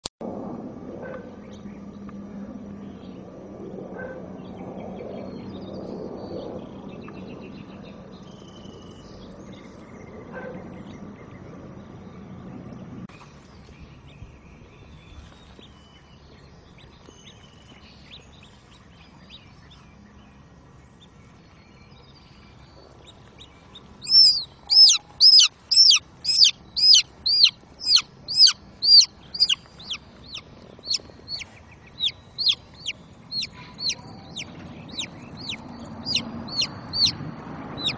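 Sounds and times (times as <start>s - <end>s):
faint bird chirps: 20.9s - 37.2s
chick peeping loudly: 24.0s - 37.2s.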